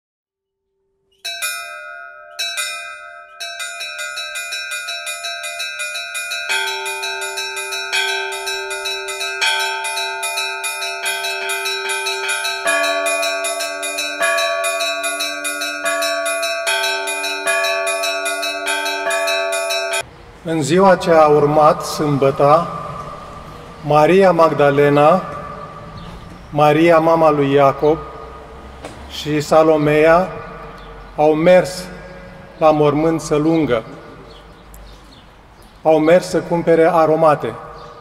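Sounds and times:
church bell strikes: 0:01.2 - 0:20.1, 0:20.8 - 0:28.8, 0:36.4 - 0:38.0
large deep bells ringing: 0:01.3 - 0:38.0.

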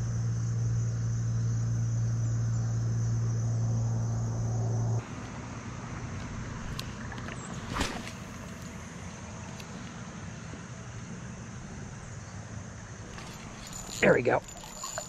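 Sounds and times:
low hum: 0:00.0 - 0:09.8, 0:10.4 - 0:15.0
high-pitched insect drone: 0:13.1 - 0:15.0.

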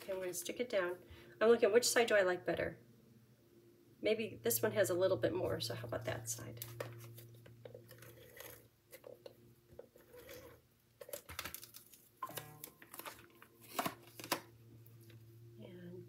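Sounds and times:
paper crackling and clicking: 0:11.0 - 0:14.5.

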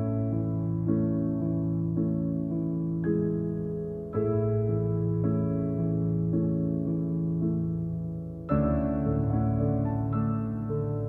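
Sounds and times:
gentle new-age instrumental music: 0:00.0 - 0:11.0.

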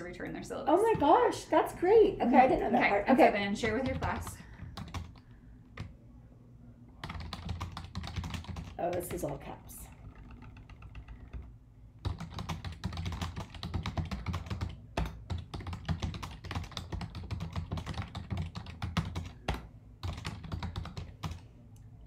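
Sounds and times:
fast typing on keyboard: 0:03.6 - 0:05.2, 0:07.0 - 0:21.4.

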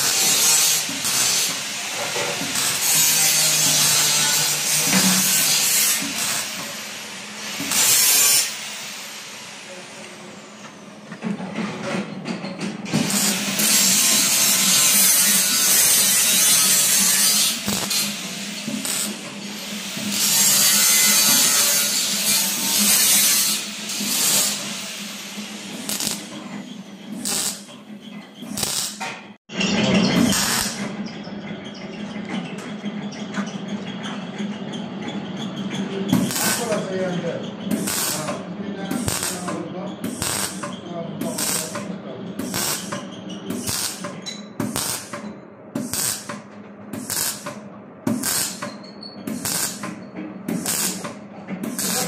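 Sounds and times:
welding arc hissing: 0:00.0 - 0:10.6, 0:13.0 - 0:26.5, 0:27.2 - 0:27.7, 0:28.5 - 0:29.1, 0:30.3 - 0:30.8, 0:36.2 - 0:36.7, 0:37.7 - 0:40.6, 0:41.2 - 0:41.8, 0:42.4 - 0:42.9, 0:43.6 - 0:44.1, 0:44.7 - 0:45.2, 0:45.8 - 0:46.3, 0:47.0 - 0:47.5, 0:48.1 - 0:48.6, 0:49.3 - 0:49.8, 0:50.5 - 0:51.1, 0:51.7 - 0:52.0.

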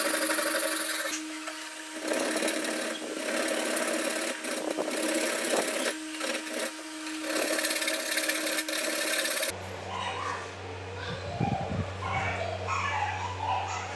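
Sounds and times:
hand file rasping on steel: 0:00.0 - 0:09.5.

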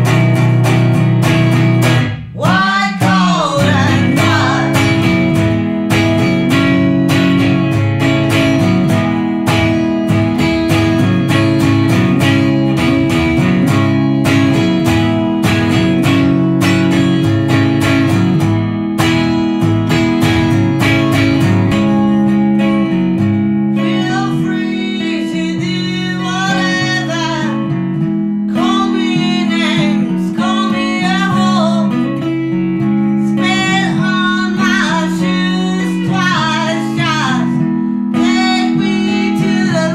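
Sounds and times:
strummed acoustic guitar: 0:00.0 - 0:39.9
woman singing: 0:02.1 - 0:07.2, 0:23.6 - 0:39.9.

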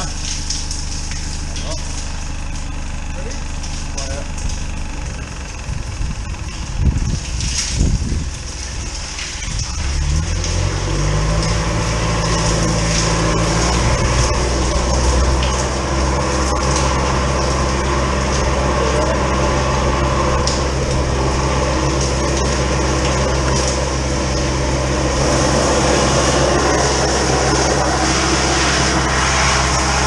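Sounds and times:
drain jetter engine running: 0:00.0 - 0:30.0
water jet hissing and splashing: 0:00.0 - 0:30.0.

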